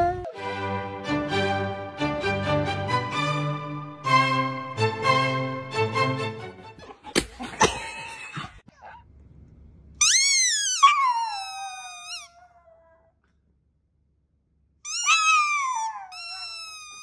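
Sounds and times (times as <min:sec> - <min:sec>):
small dog howling: 0:10.1 - 0:13.1, 0:14.9 - 0:17.0.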